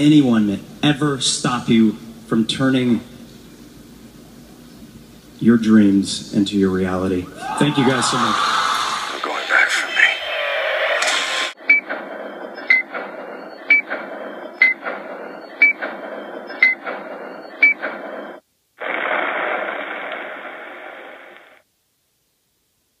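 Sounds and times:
short sharp beeps: 11.6s - 18.4s
steady hiss: 18.6s - 23.0s.

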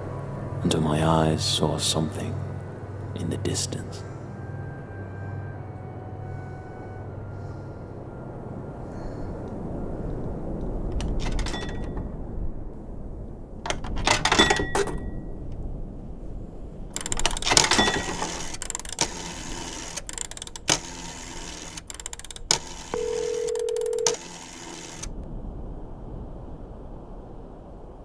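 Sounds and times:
telephone line tone: 11.2s - 12.0s, 14.2s - 15.2s, 17.4s - 25.1s
coins dropping with chime: 14.2s - 15.1s
rotary dial clicking: 16.9s - 25.1s.

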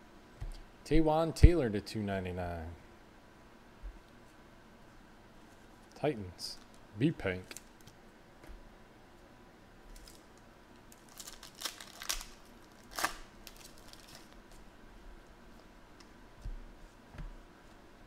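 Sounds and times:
foil wrapper tearing: 10.0s - 14.4s.

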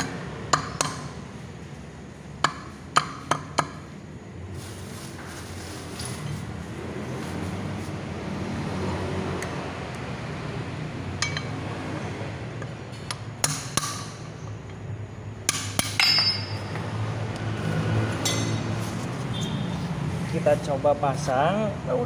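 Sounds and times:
metal tool knocking on wheel: 11.2s - 11.6s, 15.5s - 16.8s.

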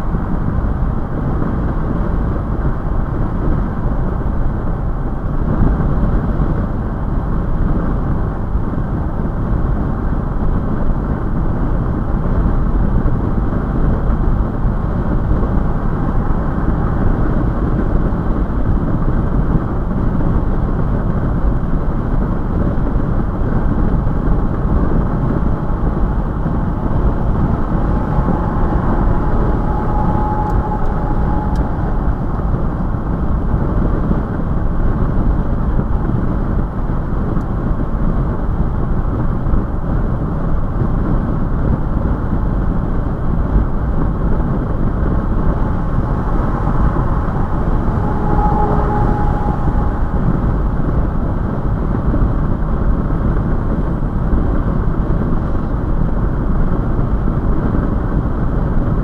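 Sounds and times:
engine drone: 0.0s - 59.0s
road tyre and wind noise: 0.0s - 59.0s
faint whine: 11.9s - 39.1s, 39.8s - 59.0s.

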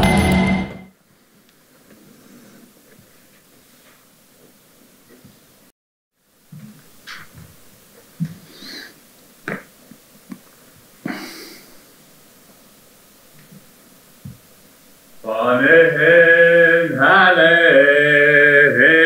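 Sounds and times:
person breathing and sniffing: 8.3s - 9.0s, 11.0s - 11.9s
person singing folk song: 15.2s - 19.0s.

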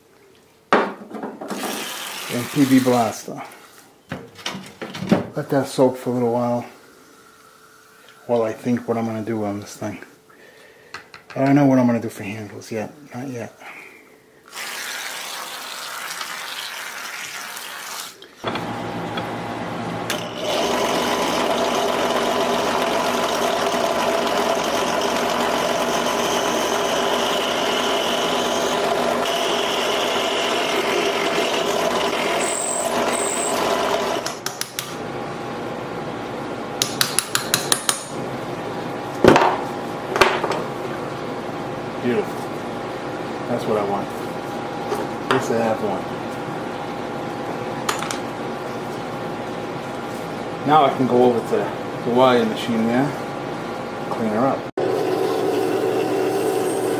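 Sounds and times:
drill press running: 18.4s - 34.5s, 54.8s - 56.9s.

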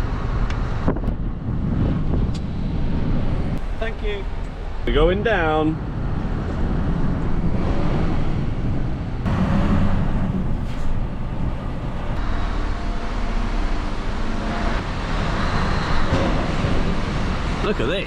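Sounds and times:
tyre and road rumble: 0.0s - 18.0s
truck engine running: 5.8s - 18.0s.

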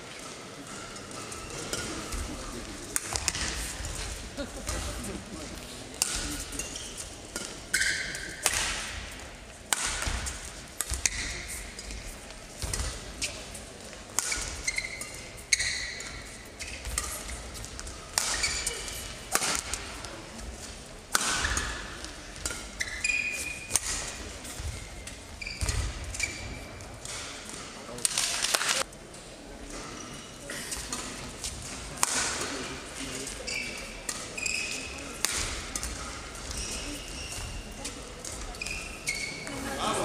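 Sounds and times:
racket hitting shuttlecock: 2.9s - 4.9s, 5.9s - 12.0s, 12.6s - 13.3s, 14.1s - 20.5s, 21.1s - 28.8s, 30.8s - 32.6s, 33.5s - 36.8s
shoes squeaking on court: 6.1s - 8.4s, 14.3s - 19.1s, 22.4s - 27.2s, 33.2s - 39.6s.

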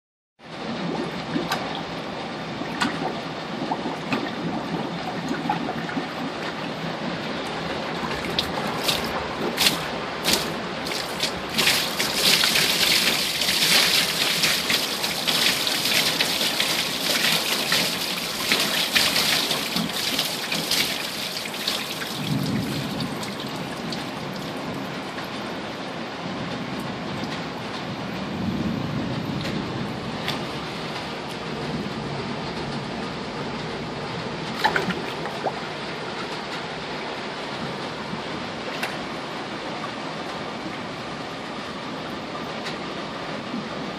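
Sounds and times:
water gurgling in toilet bowl: 0.6s - 24.9s, 34.5s - 35.7s
sharp splashes: 7.9s - 24.6s, 34.5s - 35.6s.

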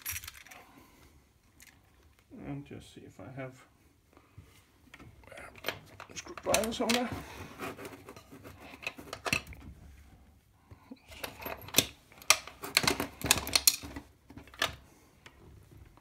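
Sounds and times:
small metal parts clicking: 0.0s - 0.6s.

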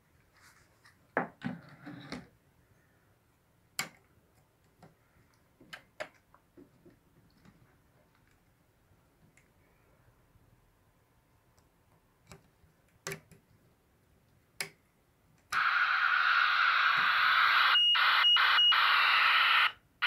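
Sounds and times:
radio receiver hiss: 15.6s - 19.8s.

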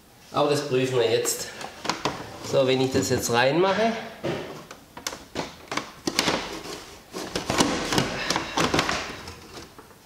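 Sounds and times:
plastic rubbing: 1.5s - 3.3s, 4.4s - 10.0s.

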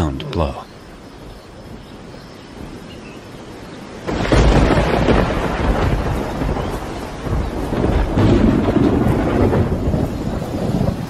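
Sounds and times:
rolling thunder: 4.0s - 11.0s.

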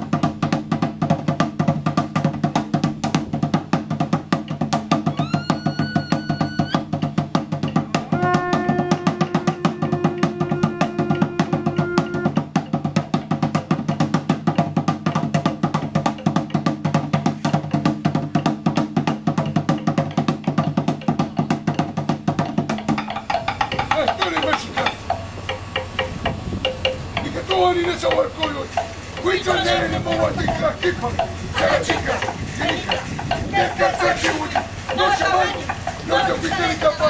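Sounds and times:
fast steady drumming: 0.0s - 37.0s
held note: 7.8s - 12.5s
voices: 23.3s - 37.0s.

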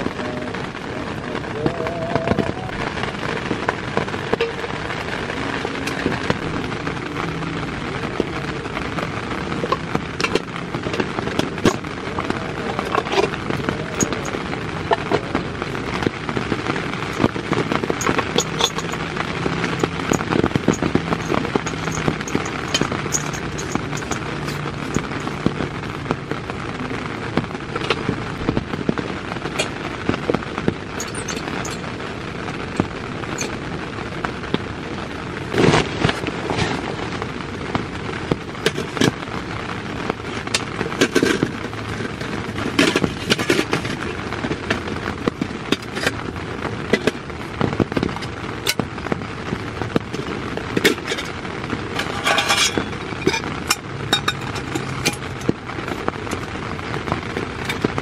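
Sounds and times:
heavy rain on tent fabric: 0.0s - 58.0s
metal clicks and knocks: 17.8s - 25.3s.

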